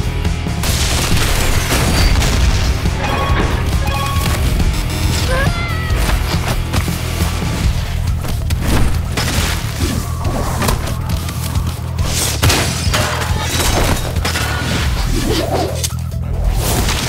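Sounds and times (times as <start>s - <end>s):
background music with steady bass: 0.0s - 17.0s.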